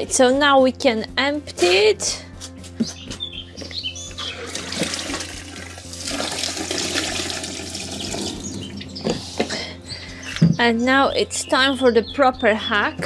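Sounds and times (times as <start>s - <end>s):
water pouring into chemical toilet: 4.3s - 8.7s.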